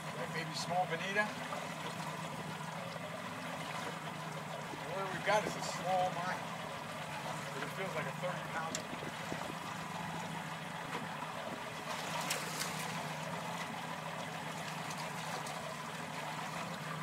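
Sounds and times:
boat engine running: 0.0s - 17.0s
water splashing at hull: 0.0s - 17.0s.

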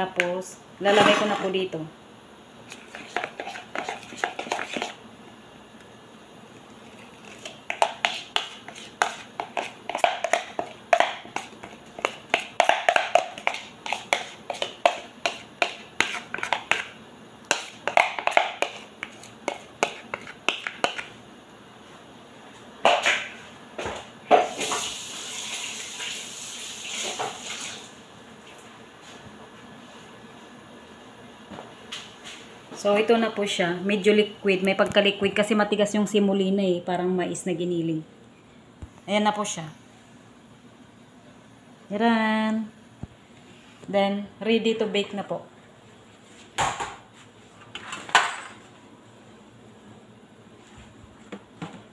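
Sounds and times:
knocks and scrapes on plastic bowl: 2.7s - 5.0s, 7.3s - 16.9s, 17.5s - 21.1s.

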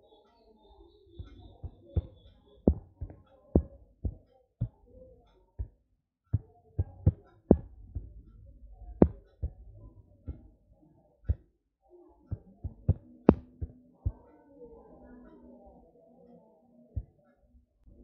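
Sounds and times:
fingertip taps on touchscreen: 1.2s - 4.8s, 6.4s - 8.1s, 9.0s - 9.6s, 12.3s - 14.2s.

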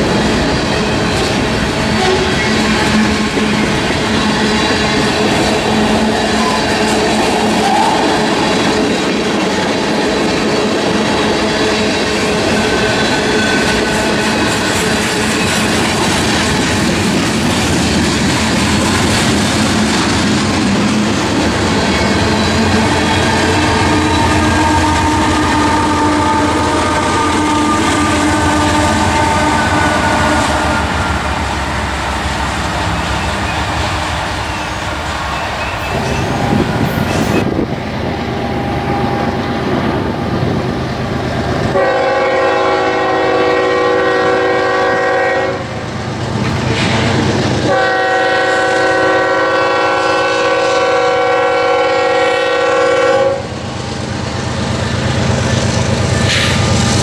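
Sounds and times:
freight train rolling past: 0.0s - 57.0s
steel wheels on rails: 0.0s - 57.0s
locomotive air horn blasts: 1.9s - 3.7s, 22.6s - 31.6s, 41.7s - 45.7s, 47.6s - 53.5s.

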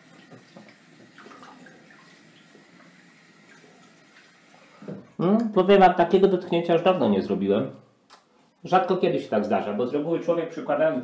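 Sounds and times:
water splashing over sink: 0.0s - 5.2s.

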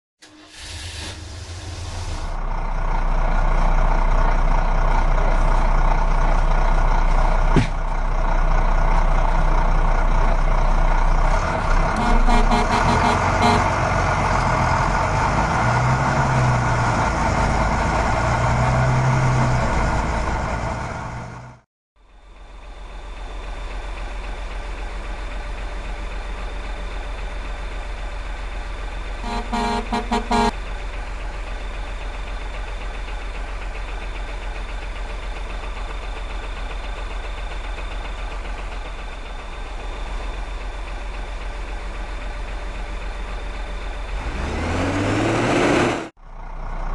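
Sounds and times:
truck engine running: 0.2s - 46.9s
short horn toots: 12.0s - 13.8s, 29.2s - 30.5s.

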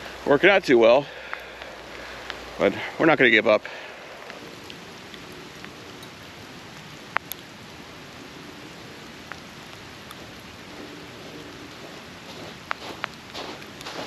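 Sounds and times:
snowstorm hiss: 0.0s - 14.0s
faint ticks: 1.1s - 2.5s, 4.2s - 7.5s, 9.2s - 14.0s.

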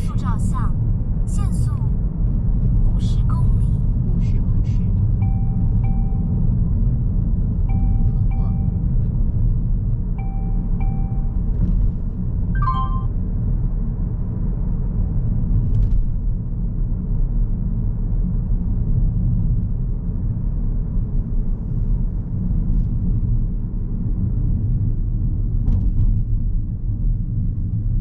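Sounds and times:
car cabin road and engine rumble: 0.0s - 28.0s
falling chime notes: 12.6s - 13.1s.

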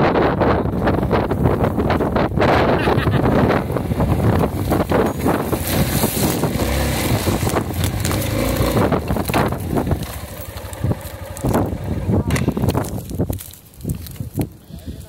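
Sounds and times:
wind buffeting microphone: 0.0s - 15.0s
motorcycle engine running: 3.3s - 13.2s
grass swishing against bike: 3.9s - 14.5s.

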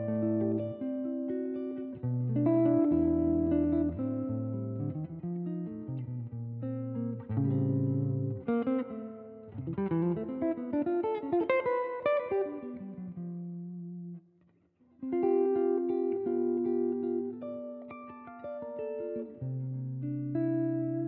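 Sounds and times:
guitar music: 0.0s - 21.0s.

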